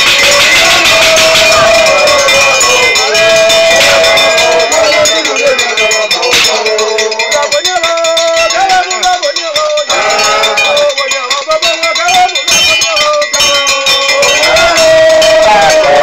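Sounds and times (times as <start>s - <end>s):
wavering melodic line: 0.0s - 8.9s
rapid clanging of metal bells: 0.0s - 16.0s.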